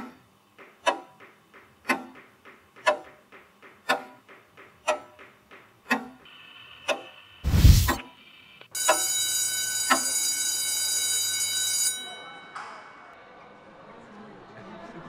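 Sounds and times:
clock ticking: 0.6s - 6.2s
electric bell ringing: 8.8s - 12.7s.

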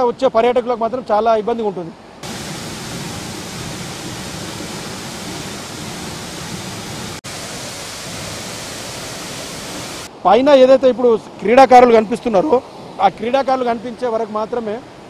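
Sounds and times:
waterfall rushing: 2.2s - 10.1s.

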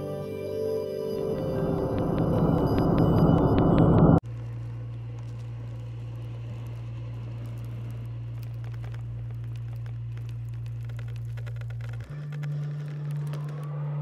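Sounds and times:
steady low drone: 0.0s - 10.5s
faint crackles and ticks: 1.6s - 14.0s.

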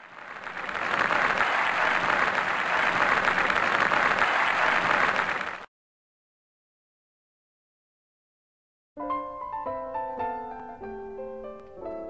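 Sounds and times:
audience applauding: 0.0s - 5.7s.

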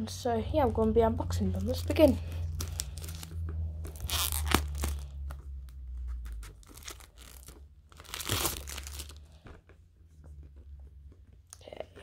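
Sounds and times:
plastic shrink-wrap crinkling: 1.5s - 9.4s.

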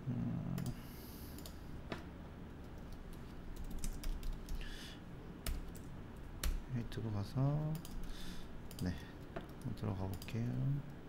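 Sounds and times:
computer keyboard keystrokes: 0.6s - 2.0s, 2.6s - 4.6s, 5.4s - 6.6s, 7.7s - 8.1s, 8.7s - 10.7s.

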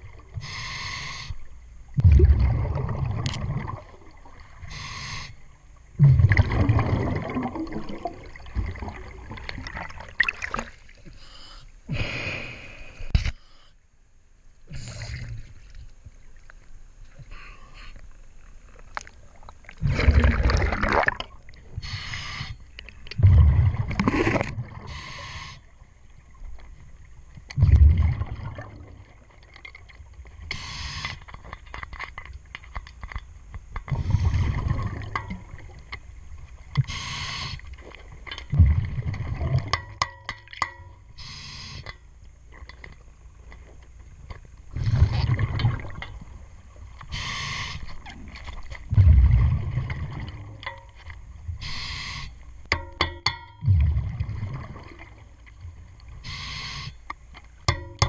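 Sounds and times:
regulator inhale hiss: 0.4s - 1.5s, 4.7s - 5.5s, 11.1s - 13.8s, 21.8s - 22.7s, 24.8s - 25.7s, 30.5s - 31.3s, 36.8s - 37.8s, 41.2s - 42.0s, 47.1s - 48.0s, 51.6s - 52.4s, 56.2s - 57.0s
gurgling exhaled bubbles: 2.0s - 4.7s, 6.0s - 10.8s, 19.3s - 21.9s, 23.2s - 24.9s, 27.6s - 29.3s, 33.9s - 35.8s, 38.5s - 39.7s, 44.7s - 46.4s, 47.9s - 50.6s, 53.6s - 55.2s.

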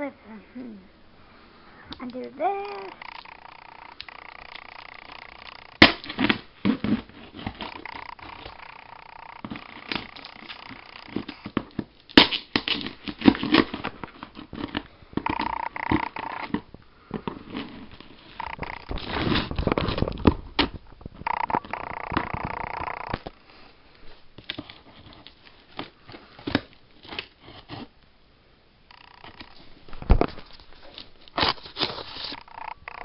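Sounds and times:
tape tearing: 2.6s - 16.6s, 17.2s - 20.8s, 29.2s - 32.5s
cardboard scraping and rustling: 6.0s - 8.5s, 12.6s - 20.8s, 29.6s - 32.4s
packing tape peeling: 30.4s - 32.4s.

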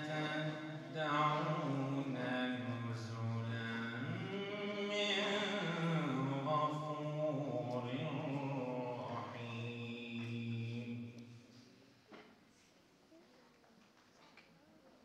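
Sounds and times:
man chanting melodically: 0.0s - 11.3s.

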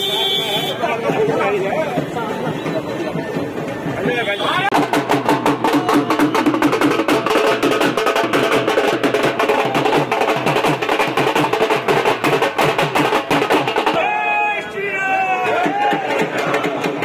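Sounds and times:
dhol drums beaten rapidly: 0.0s - 17.0s.

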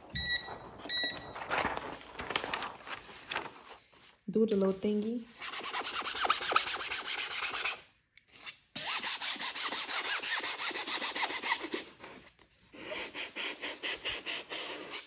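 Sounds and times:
hands rubbing paper scratchy rasp: 5.3s - 7.8s.

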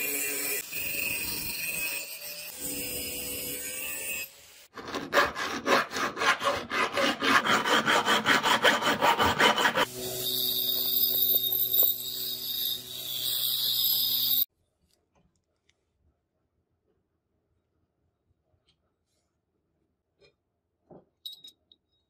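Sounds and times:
hand file rasping on steel: 4.8s - 9.9s
belt grinder running: 7.4s - 14.5s
grinding wheel on steel: 7.4s - 14.5s.

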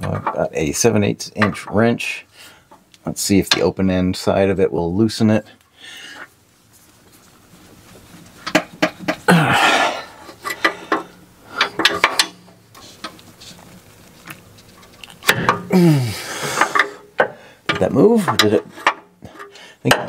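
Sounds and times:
person grunting with effort: 9.3s - 10.2s, 15.6s - 16.5s.

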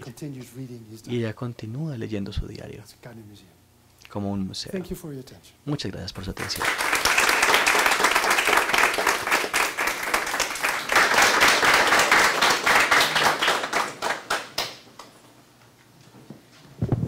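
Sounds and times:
audience applauding: 6.4s - 14.8s.

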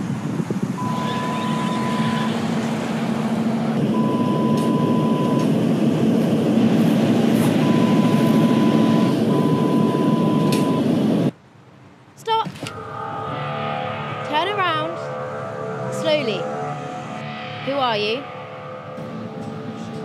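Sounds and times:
moving vehicle noise: 0.0s - 20.0s
low hum: 0.6s - 11.4s, 12.6s - 20.0s
high beep: 0.8s - 2.4s, 4.0s - 5.4s.

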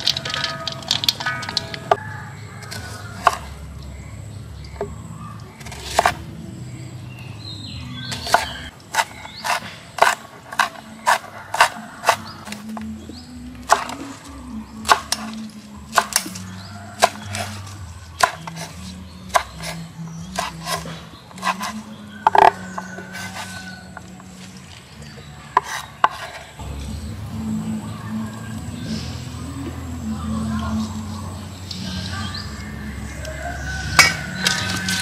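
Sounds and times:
soft background music: 0.0s - 35.0s
cleaver chopping on wooden board: 5.6s - 6.2s, 8.1s - 12.8s, 13.7s - 14.1s, 14.9s - 16.4s, 17.0s - 19.8s, 20.4s - 23.6s, 25.6s - 26.5s.

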